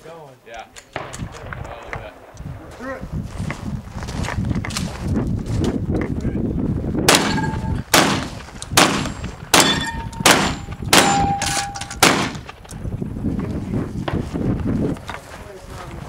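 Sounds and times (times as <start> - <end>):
rifle gunshots: 7.1 - 12.6
steel targets ringing: 7.2 - 7.8, 9.6 - 12.0.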